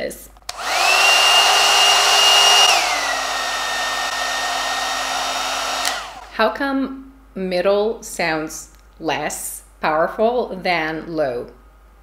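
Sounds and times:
hair dryer motor whine: 0.5 - 6.3.

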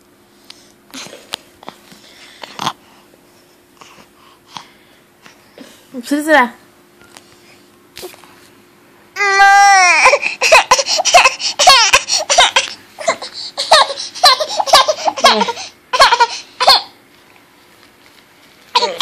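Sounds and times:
baby squealing and giggling: 9.2 - 16.9.

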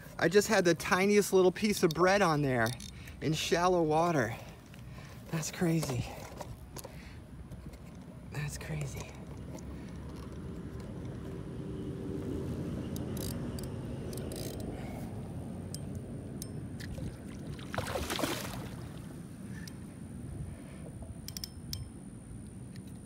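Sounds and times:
fish thrashing and splashing: 16.8 - 19.1.

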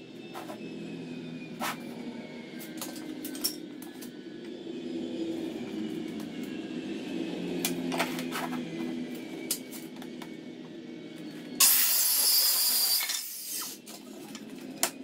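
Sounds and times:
circular saw cutting wood: 11.2 - 14.4.

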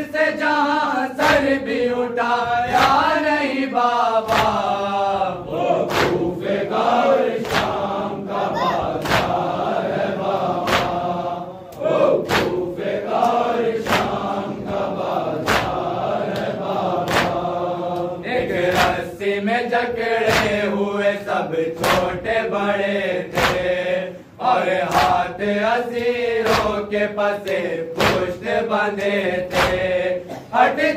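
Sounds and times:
men chanting in unison: 0.0 - 30.9
hands slapping chests: 2.7 - 3.1, 4.2 - 4.8, 5.8 - 6.3, 7.4 - 7.8, 8.8 - 9.6, 10.5 - 11.1, 11.7 - 14.3, 15.3 - 19.0, 20.2 - 20.6, 21.8 - 22.2, 23.3 - 23.8, 25.9 - 26.8, 27.4 - 29.9.

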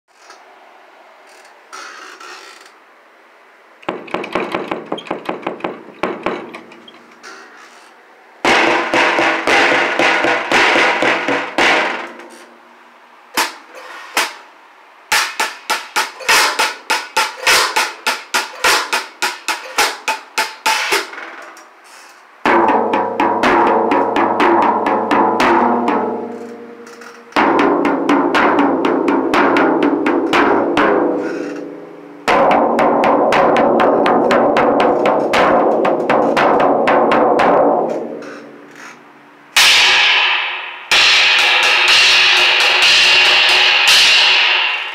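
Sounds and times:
toms ringing: 3.8 - 12.6, 15.1 - 21.6, 22.4 - 39.0, 39.6 - 44.9
snare drum strokes and rolls: 8.4 - 12.5, 15.1 - 21.2, 22.4 - 26.6, 27.3 - 31.7, 32.3 - 38.4, 39.6 - 44.9.

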